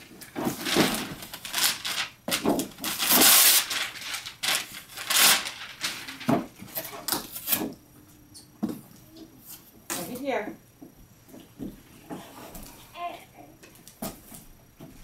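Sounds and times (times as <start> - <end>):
wrapping paper rustling and tearing: 0.2 - 7.6.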